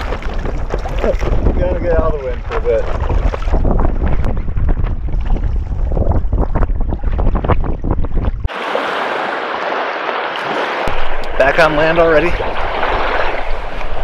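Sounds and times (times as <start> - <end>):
wind buffeting microphone: 0.0 - 9.9
water splashing against kayak hull: 0.0 - 14.0
waves washing up pebble beach: 8.5 - 14.0.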